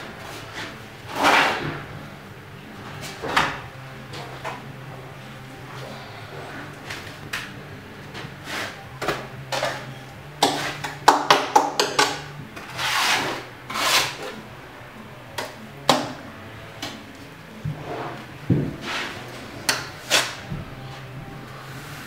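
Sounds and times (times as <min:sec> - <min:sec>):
plastering tools scraping and knocking: 0:00.0 - 0:01.9, 0:05.8 - 0:14.4, 0:15.4 - 0:21.1
steady low hum: 0:00.0 - 0:11.1, 0:12.0 - 0:22.0
plastering tool swishes: 0:12.7 - 0:14.3, 0:18.8 - 0:19.3.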